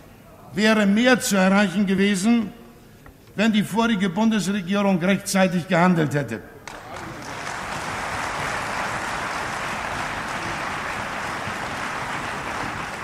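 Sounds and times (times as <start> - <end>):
crowd applause: 6.7 - 13.0.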